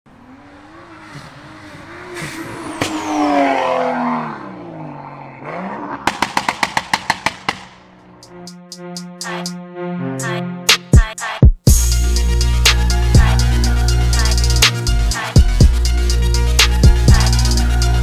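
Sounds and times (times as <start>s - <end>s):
car engine revving: 0.1s - 9.0s, 12.1s - 18.0s
exhaust pops: 6.0s - 8.0s
music: 8.2s - 18.0s.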